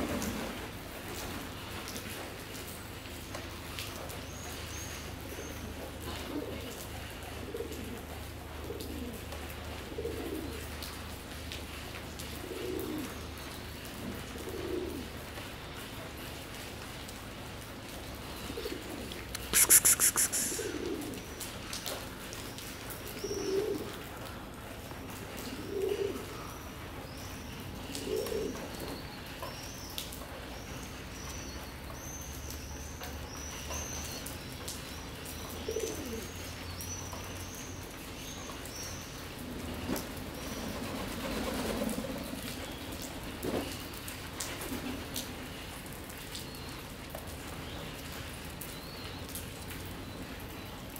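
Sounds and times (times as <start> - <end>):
pigeon cooing: 6.0 - 9.3, 9.9 - 10.9, 12.4 - 13.2, 18.4 - 21.3, 23.2 - 24.0, 25.4 - 26.4, 35.6 - 36.4
small birds chirping: 19.2 - 20.9.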